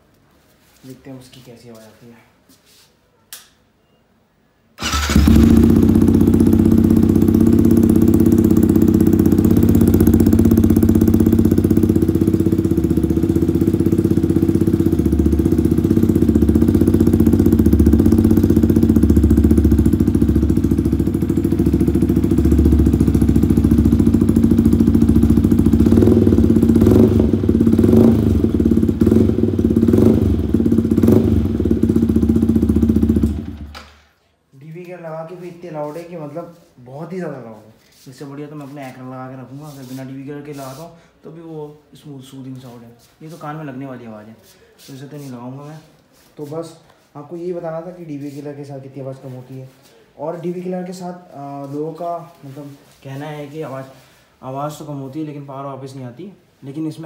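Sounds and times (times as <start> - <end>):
motorcycle engine idling loudly: 4.8 - 33.7
motorcycle engine blipped: 4.8 - 33.8.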